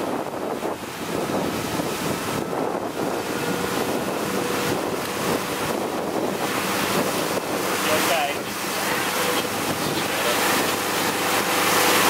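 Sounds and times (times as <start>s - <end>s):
churning wake and spray: 0.0s - 12.0s
outboard motor hum: 0.0s - 12.0s
wind buffeting microphone: 0.0s - 12.0s.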